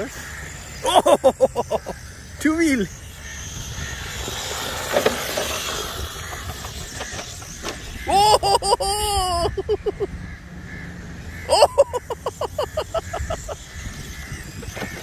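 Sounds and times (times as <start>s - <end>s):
rc car whirring hiss: 0.0s - 9.4s, 11.9s - 15.0s.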